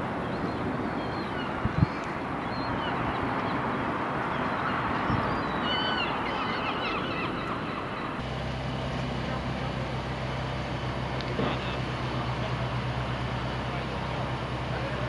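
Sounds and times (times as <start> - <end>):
gulls calling: 0.0 - 8.2
outdoor background noise: 0.0 - 15.0
steady low hum: 7.8 - 15.0.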